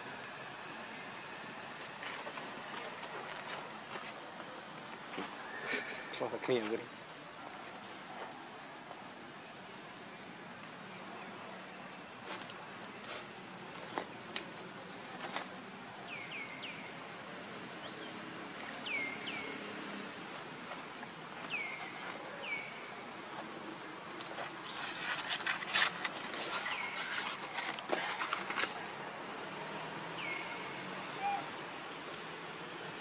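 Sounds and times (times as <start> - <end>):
rustling: 24.3 - 28.9.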